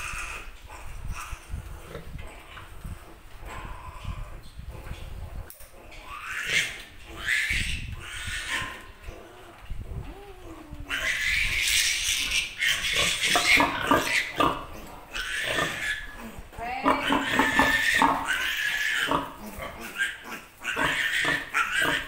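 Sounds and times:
piglet squealing: 6.0s - 8.8s, 10.2s - 14.6s, 15.2s - 16.2s, 16.9s - 22.0s.

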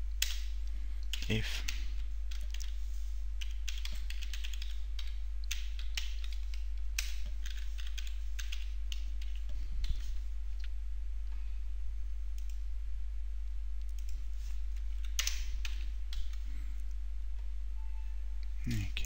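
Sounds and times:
steady low hum: 0.0s - 19.0s
typing on computer keyboard: 1.1s - 2.7s, 3.4s - 10.1s, 15.0s - 16.4s.

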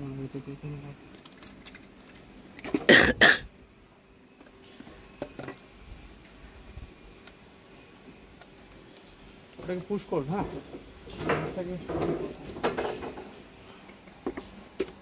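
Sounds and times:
person coughing: 2.8s - 3.5s.

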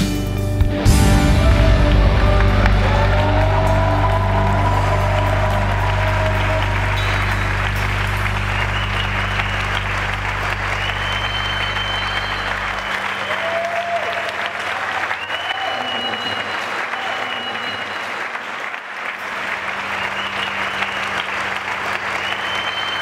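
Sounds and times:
low musical notes: 0.0s - 13.2s
audience applauding and cheering: 0.6s - 23.0s.

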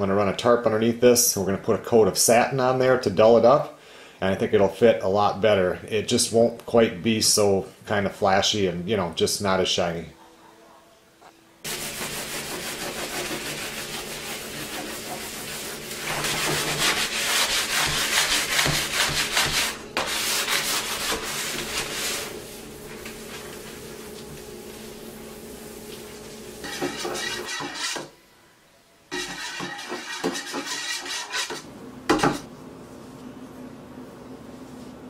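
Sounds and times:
hand sanding wood: 11.6s - 22.6s, 26.6s - 28.1s, 29.1s - 31.6s.

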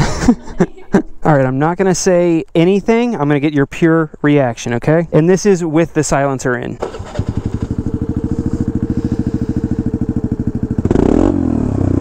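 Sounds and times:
motorcycle engine idling and revving: 6.8s - 12.0s.

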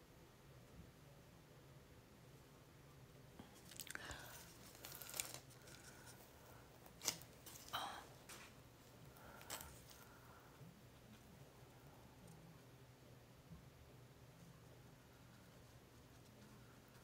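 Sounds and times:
paintbrush scratchy rustles: 14.3s - 17.0s.

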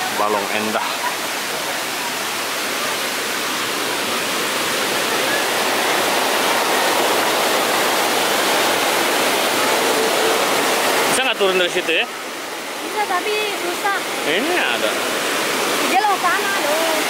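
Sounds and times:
mountain stream rushing: 0.0s - 17.0s.

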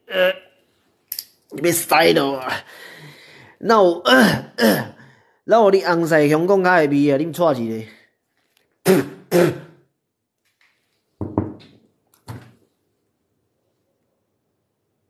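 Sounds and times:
soft knocks: 11.2s - 12.6s.

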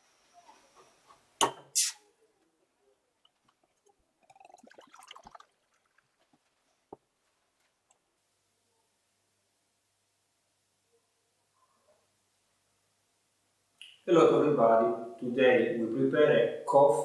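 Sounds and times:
bottle stopper popping: 1.4s - 2.0s, 4.2s - 6.1s
beer pouring into glass: 3.5s - 6.4s.

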